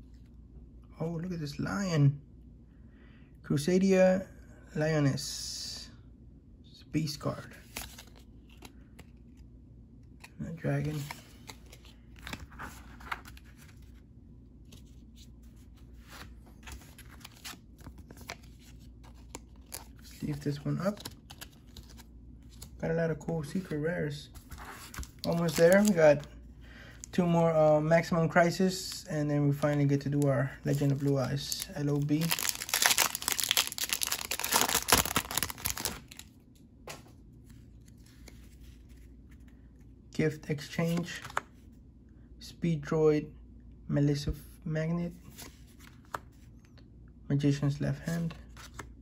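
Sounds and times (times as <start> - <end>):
handling of cards: 7.5 - 26.4, 29.5 - 39.6, 40.6 - 41.6, 48.1 - 49.0
foil wrapper crinkling: 30.7 - 36.2.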